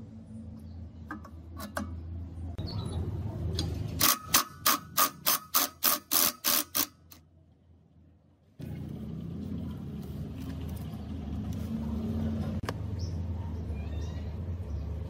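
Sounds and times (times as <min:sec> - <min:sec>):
cordless ratchet wrench pulses: 0:04.0 - 0:07.2.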